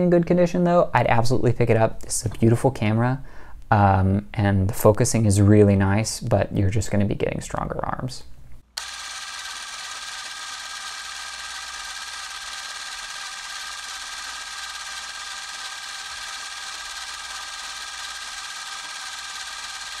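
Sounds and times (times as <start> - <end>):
small motor whirring: 8.8 - 20.0.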